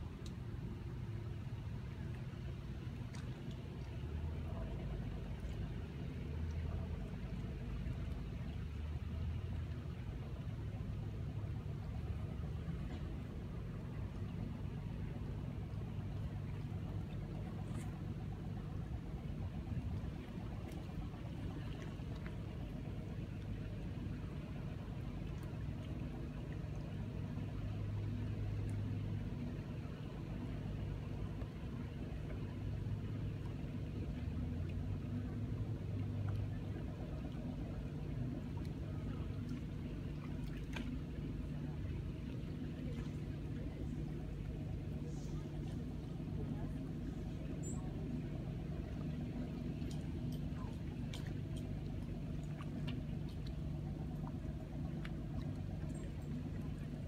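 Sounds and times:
low engine hum: 0.0 - 57.0
faint clicks: 0.1 - 0.5, 3.0 - 4.0, 48.9 - 53.6.

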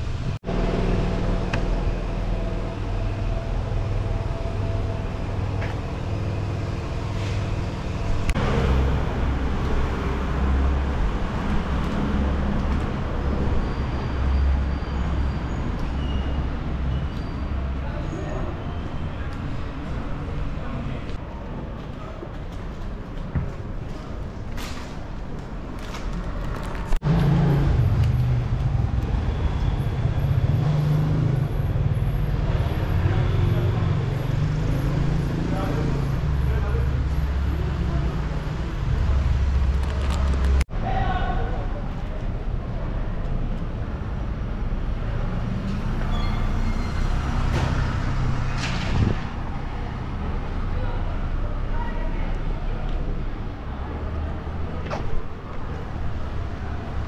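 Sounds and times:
city street traffic: 0.0 - 57.0
motor vehicle rumbling close by: 26.8 - 40.6.

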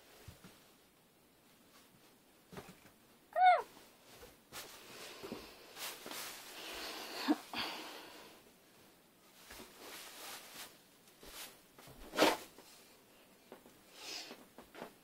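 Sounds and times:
clothing rustling: 3.7 - 7.4, 9.2 - 12.8.

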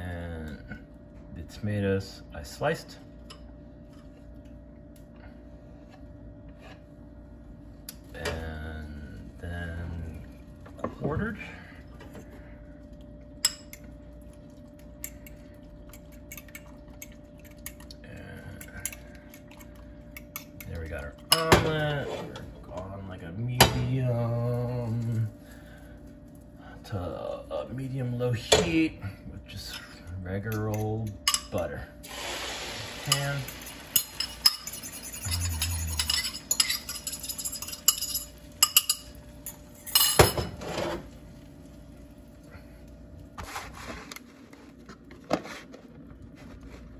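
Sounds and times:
faint steady hum: 0.0 - 46.9
spoon clinking against bowl: 33.1 - 40.2.

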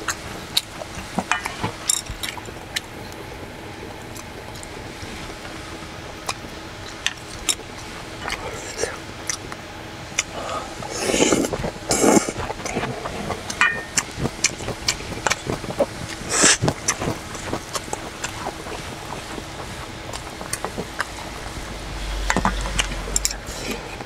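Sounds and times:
person chewing: 8.2 - 24.0
rush of noise: 18.6 - 24.0.

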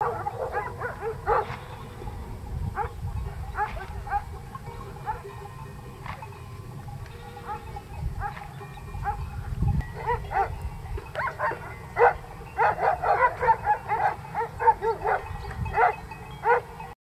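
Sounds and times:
herd animals calling: 0.0 - 16.9.

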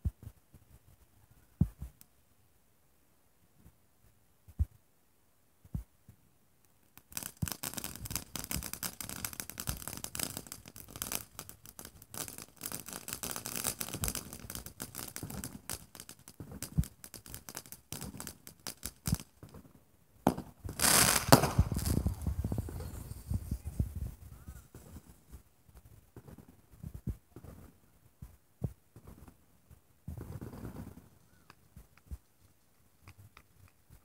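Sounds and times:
firework fountain crackling: 6.8 - 27.8.

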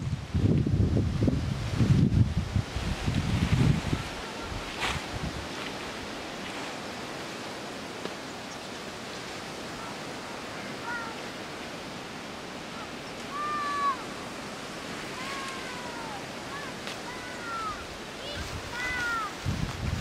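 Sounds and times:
wind rushing through trees: 0.0 - 20.0
short high animal calls: 12.7 - 14.1.

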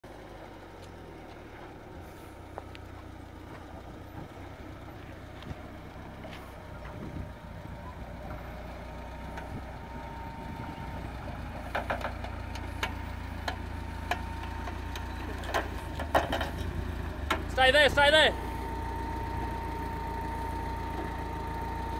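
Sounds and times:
engine running at low revs: 0.0 - 21.9.

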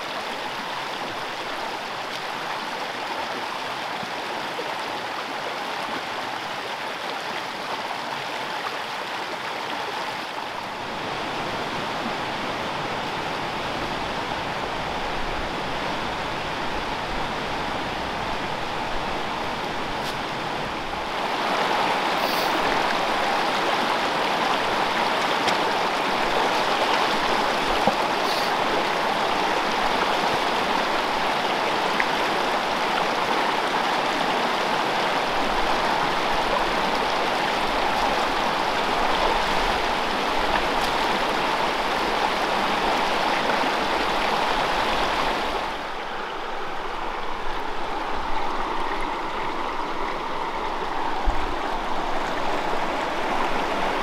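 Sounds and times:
mountain stream rushing: 0.0 - 54.0.

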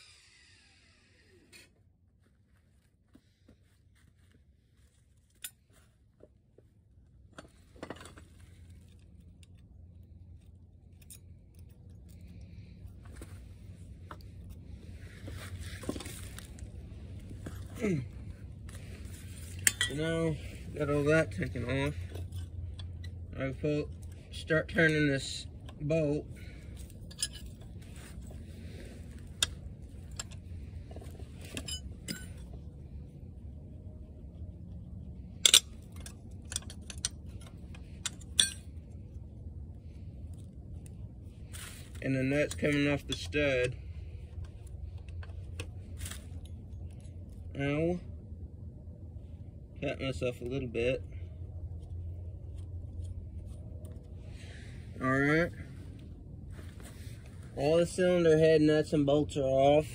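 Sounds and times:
light metallic clinks: 31.4 - 32.6, 35.4 - 38.9.

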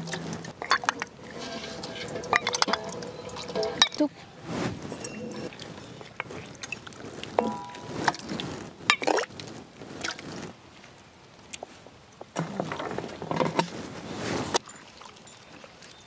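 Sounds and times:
wet sloshing and swishing: 0.0 - 10.6.

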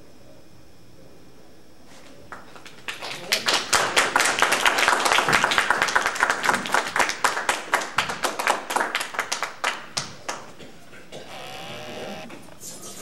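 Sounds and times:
audience applauding: 2.3 - 10.5.

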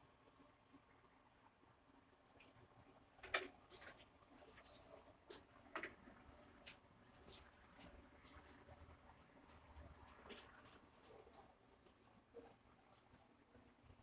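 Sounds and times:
soft clicks and scuffs: 3.2 - 12.1.

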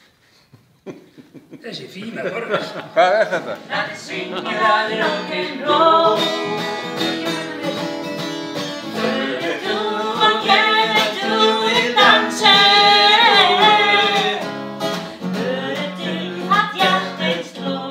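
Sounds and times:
strummed acoustic guitar: 3.4 - 17.9
woman singing: 3.7 - 8.2, 8.9 - 14.5, 15.2 - 17.9.

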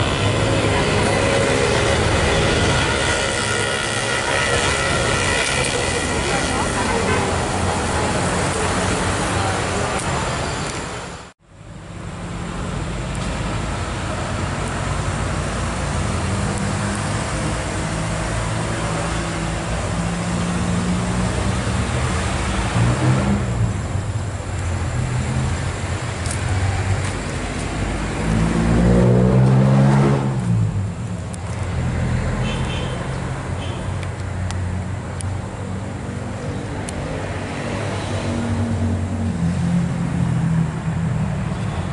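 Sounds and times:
road traffic: 0.0 - 41.9
vehicle engine passing by: 24.8 - 31.0.

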